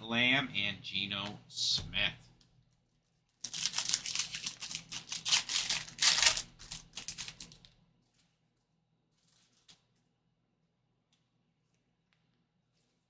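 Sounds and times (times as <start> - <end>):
foil wrapper crinkling and tearing: 3.0 - 8.4, 9.1 - 10.1.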